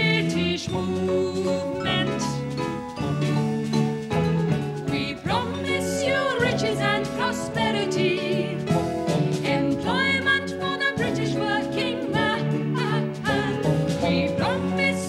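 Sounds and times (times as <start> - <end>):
women singing hymn-style song: 0.0 - 2.4, 4.9 - 8.6, 9.4 - 15.0
held accompaniment chords: 0.0 - 15.0.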